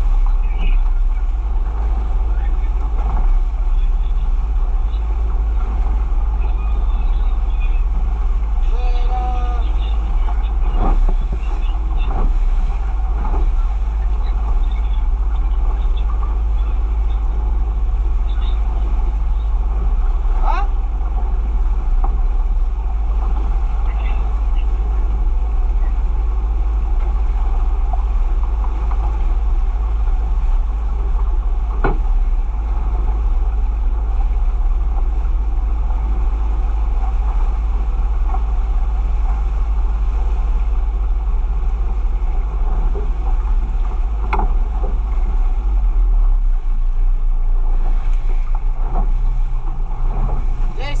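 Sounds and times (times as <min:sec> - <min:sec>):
boat engine drone: 0:00.0 - 0:51.0
water rushing past hull: 0:00.0 - 0:51.0
wind on microphone: 0:00.0 - 0:51.0.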